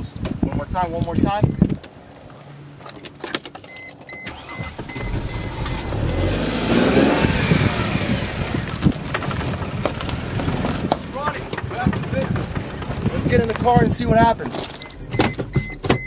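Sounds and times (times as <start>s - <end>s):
dashboard warning chime beeping: 1.4s - 1.6s, 3.7s - 6.4s, 14.7s - 16.0s
car engine cranking and revving: 4.1s - 13.6s.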